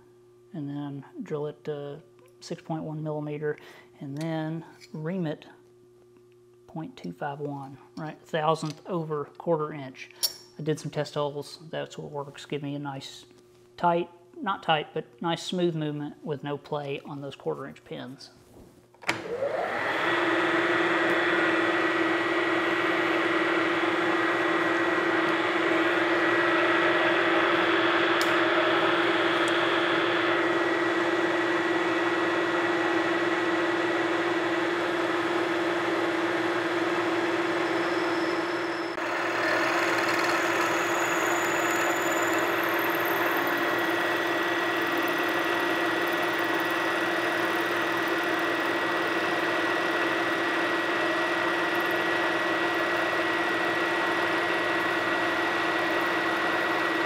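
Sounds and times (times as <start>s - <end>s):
milling machine humming with whine: 19.1s - 57.0s.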